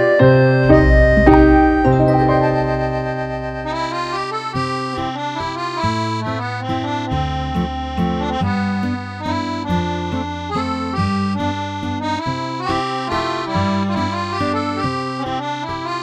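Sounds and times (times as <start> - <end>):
instrumental background music: 0.0 - 16.0.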